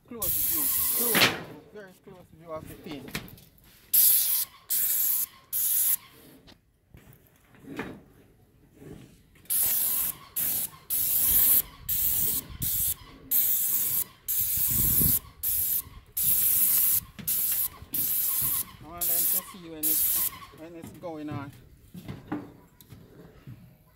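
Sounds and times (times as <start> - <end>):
paint spray gun hissing: 0.2 - 1.2, 3.9 - 6.0, 9.5 - 20.4.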